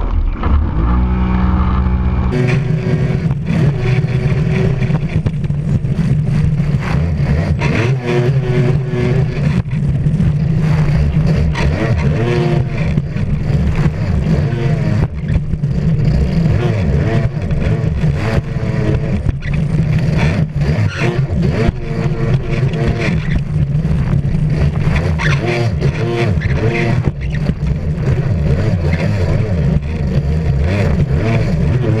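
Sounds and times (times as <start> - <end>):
jet ski engine revving: 0.0 - 32.0.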